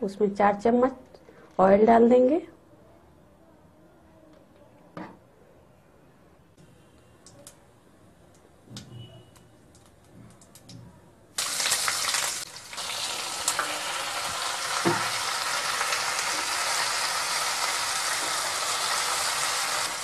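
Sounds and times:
seeds crackling in hot oil: 11.4s - 20.0s
vegetables sizzling in oil: 11.4s - 20.0s.

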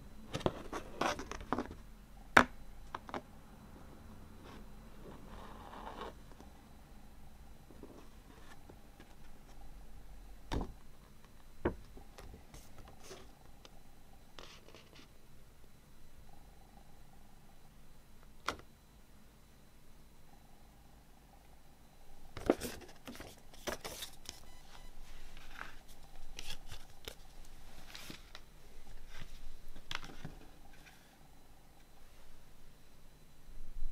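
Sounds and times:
paper rustling: 22.4s - 24.4s, 25.0s - 31.1s.

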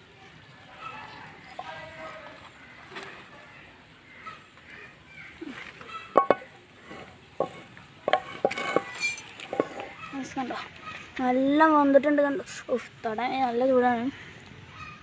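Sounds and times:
frying pan and spatula knocking: 6.1s - 9.9s.

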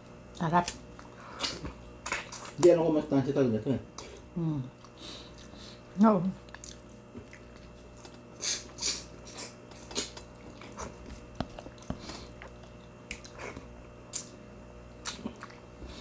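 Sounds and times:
wet chewing and smacking: 6.4s - 14.4s, 15.0s - 15.8s.

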